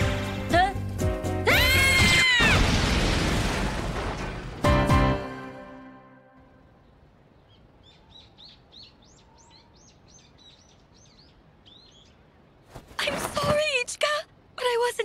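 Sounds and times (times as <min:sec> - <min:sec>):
soft outdoor hiss: 0:06.4 - 0:15.0
birds chirping: 0:06.5 - 0:13.8.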